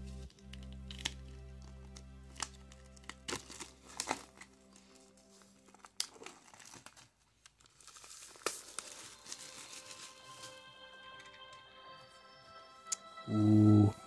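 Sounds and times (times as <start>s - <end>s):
sharp plastic crackles: 0.2s - 10.6s
plastic shrink wrap crinkling: 0.2s - 11.6s.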